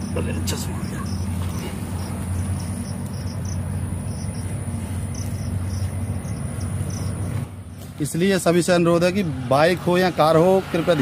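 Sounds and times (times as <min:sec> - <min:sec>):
insects chirping: 0:00.0 - 0:08.7.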